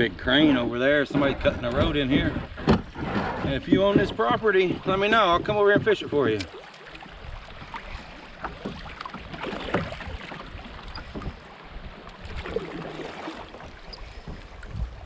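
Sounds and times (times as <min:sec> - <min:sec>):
wind rumble on microphone: 0:00.0 - 0:06.3, 0:09.3 - 0:15.0
water splashing around a kayak: 0:00.0 - 0:15.0.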